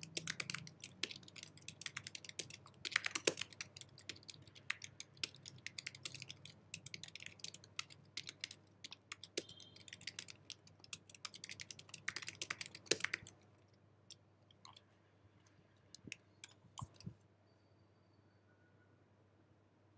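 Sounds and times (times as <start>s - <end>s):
fast keyboard typing: 0.0s - 13.4s.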